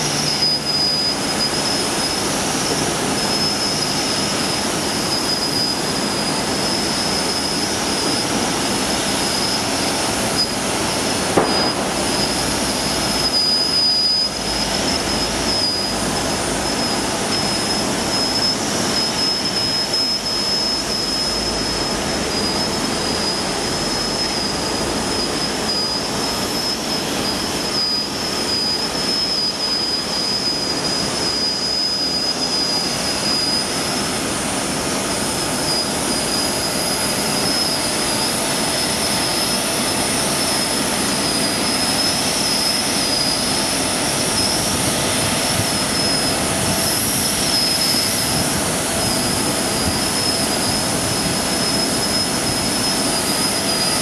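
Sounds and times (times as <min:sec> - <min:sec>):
jet turbines whining: 0:00.0 - 0:54.0.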